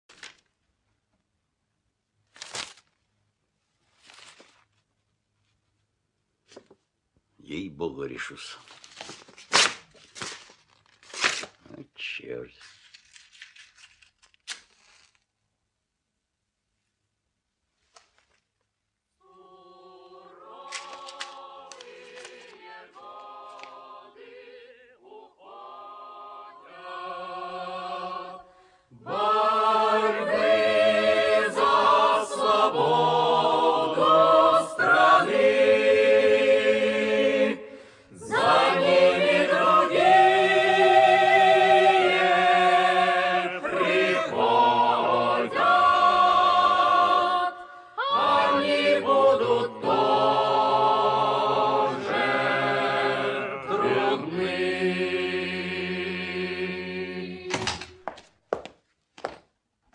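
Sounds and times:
choir singing a cappella: 19.2s - 58.0s.

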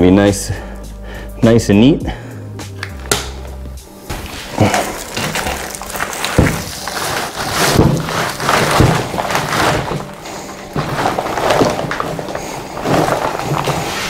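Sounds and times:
dull thumps: 2.8s - 14.0s
plastic rustling and crinkling: 4.1s - 14.0s.

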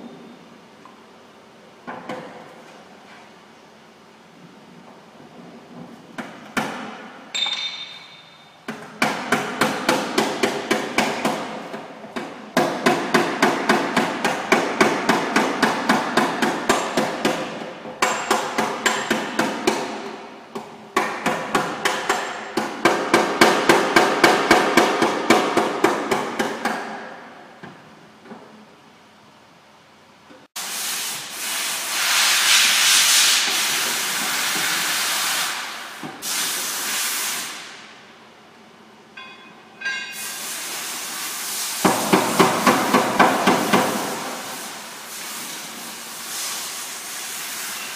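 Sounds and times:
hammer on sheet metal: 6.6s - 11.6s, 12.5s - 20.0s, 21.0s - 27.2s, 39.2s - 40.5s, 41.8s - 44.4s.

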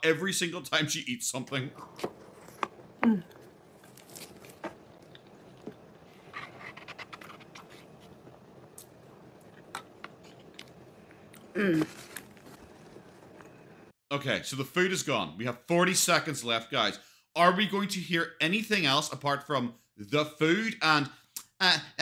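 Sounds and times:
chewing: 3.2s - 6.6s.

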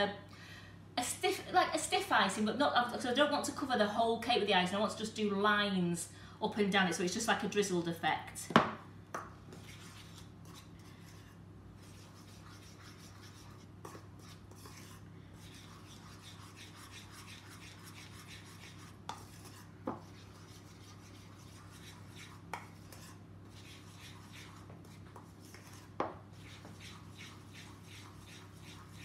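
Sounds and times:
spoon stirring in a bowl: 9.5s - 29.0s.

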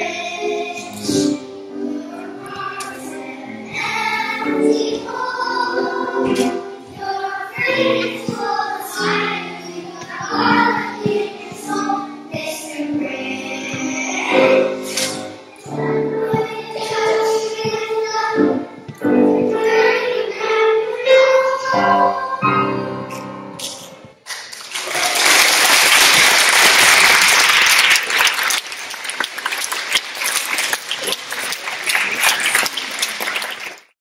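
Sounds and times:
children's choir singing: 0.0s - 23.6s
audience applause: 24.3s - 34.0s.

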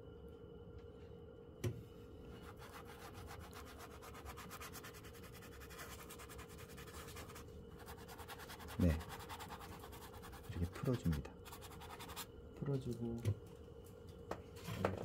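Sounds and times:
brush scrubbing on canvas: 2.4s - 12.3s.

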